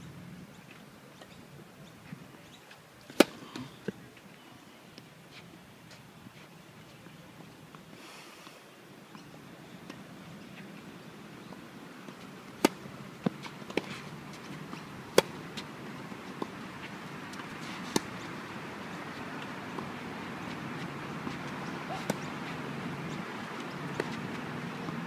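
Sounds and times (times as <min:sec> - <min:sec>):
racquets striking tennis ball: 0:03.1 - 0:03.6, 0:12.0 - 0:25.0
tennis ball bouncing: 0:03.1 - 0:04.0, 0:12.0 - 0:25.0.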